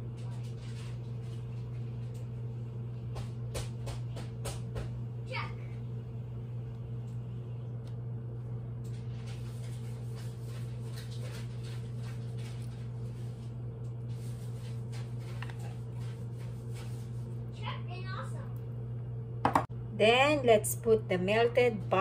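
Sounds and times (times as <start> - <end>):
low machine hum: 0.0 - 22.0.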